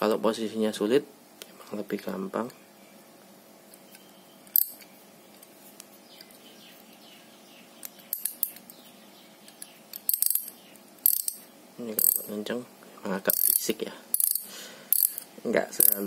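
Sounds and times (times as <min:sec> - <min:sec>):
ratchet wrench clicking: 0:09.5 - 0:11.4, 0:12.0 - 0:12.3, 0:13.3 - 0:16.0.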